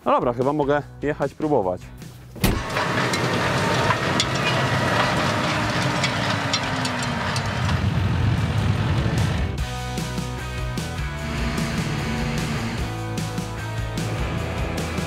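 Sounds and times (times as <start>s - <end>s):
tractor engine rumble under load: 2.4s - 9.4s, 11.0s - 13.0s
clicks and rattles: 2.6s - 8.0s.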